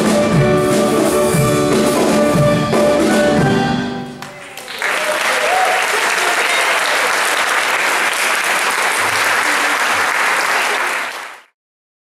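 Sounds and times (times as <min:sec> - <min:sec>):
audience applauding: 0:04.2 - 0:11.6.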